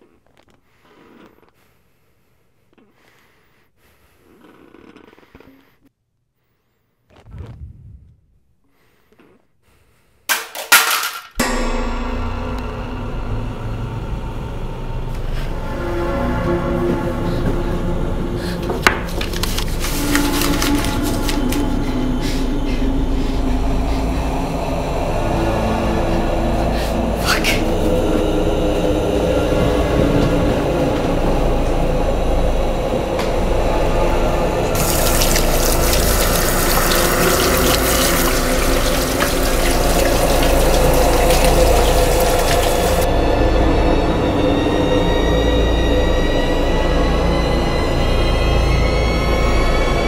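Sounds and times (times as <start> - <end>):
droning horror score: 11.4 - 50.0
tap water splashing over hands: 34.8 - 43.1.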